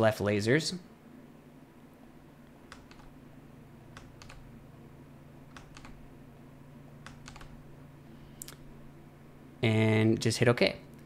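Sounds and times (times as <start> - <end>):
faint low hum: 0.0 - 11.0
computer mouse clicking: 2.7 - 3.1, 3.9 - 4.5, 5.5 - 6.0, 7.0 - 7.6.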